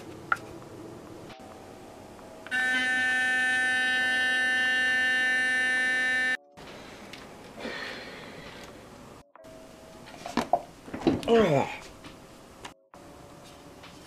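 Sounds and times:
electric toothbrush buzzing: 2.5 - 6.4.

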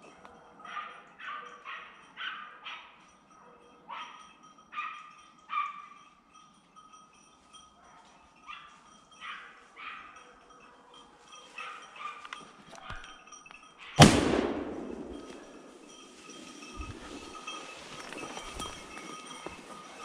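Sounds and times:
dog barking: 0.4 - 5.9, 7.8 - 13.2.

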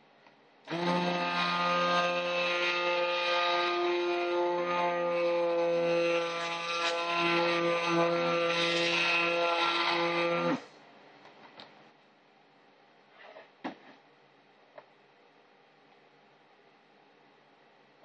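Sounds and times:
stick blender motor whine: 0.7 - 10.7.

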